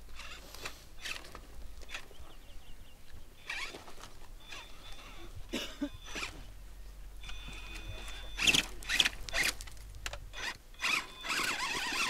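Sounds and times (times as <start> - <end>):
faint high whine: 0.1 - 12.0
model truck rasping bursts: 0.2 - 1.3, 3.4 - 3.8, 6.0 - 6.5, 10.3 - 12.0.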